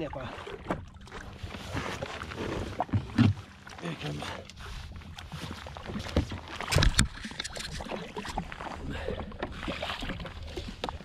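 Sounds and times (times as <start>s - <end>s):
water lapping against hull: 0.0s - 11.0s
wind and water rumble: 0.0s - 11.0s.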